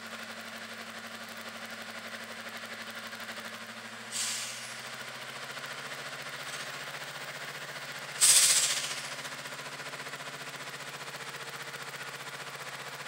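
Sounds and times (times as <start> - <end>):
diesel locomotive idling: 0.0 - 13.0
air brake hiss: 4.0 - 4.9, 8.2 - 9.2.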